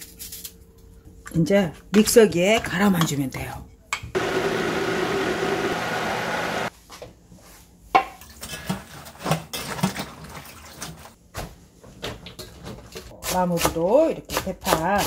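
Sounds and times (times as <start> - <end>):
blender running: 4.2 - 6.7
water sloshing in a bowl: 8.6 - 11.2.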